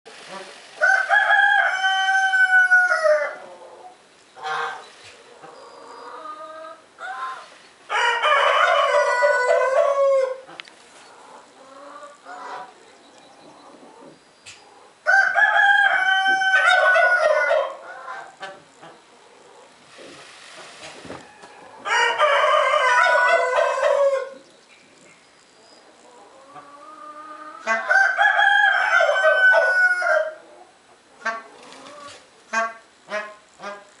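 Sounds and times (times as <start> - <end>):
rooster crowing: 0.8 - 3.4, 7.9 - 10.4, 15.1 - 18.2, 21.2 - 24.4, 27.7 - 30.4
fowl calls: 4.4 - 12.8.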